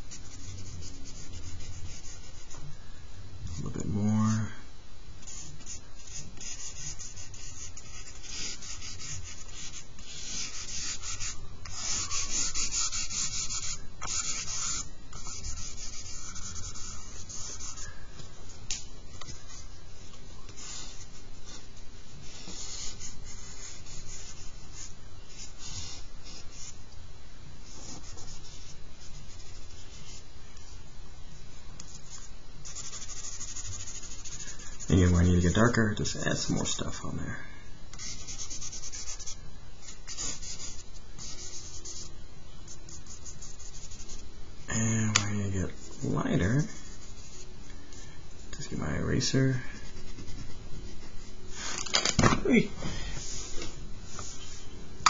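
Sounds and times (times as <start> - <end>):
charcoal scratching on paper: 5.2 - 17.9, 20.5 - 26.8, 31.8 - 35.6, 38.0 - 42.1, 42.7 - 44.2, 49.7 - 51.8.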